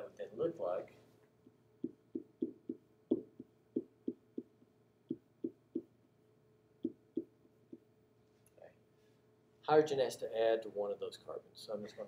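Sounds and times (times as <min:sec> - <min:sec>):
stylus tapping on whiteboard: 0:01.4 - 0:05.9, 0:06.8 - 0:07.9.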